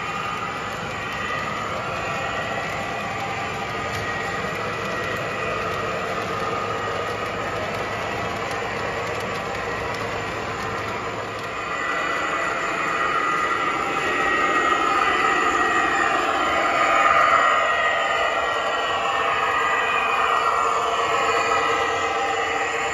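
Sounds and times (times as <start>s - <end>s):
model train rolling on track: 0.0s - 22.9s
faint clicks: 0.2s - 12.2s.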